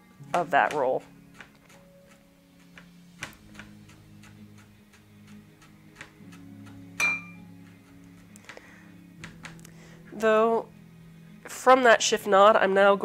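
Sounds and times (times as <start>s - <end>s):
sharp ringing clink: 7.0s - 7.4s.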